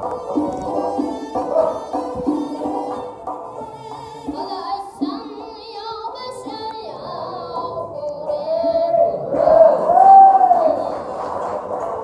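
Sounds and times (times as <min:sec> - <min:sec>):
wavering melody with vibrato: 0:00.0 - 0:09.1.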